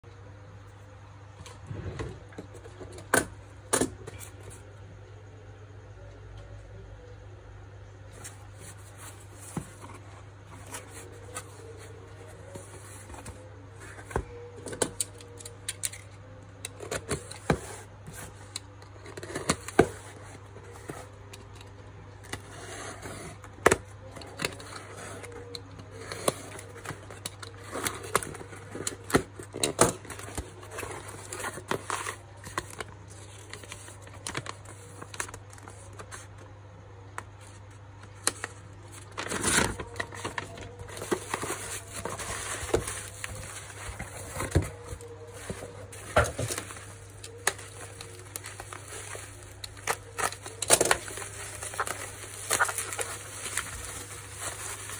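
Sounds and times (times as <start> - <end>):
cardboard and paper handling: 8.1 - 16.1, 16.8 - 36.5, 37.2 - 54.9.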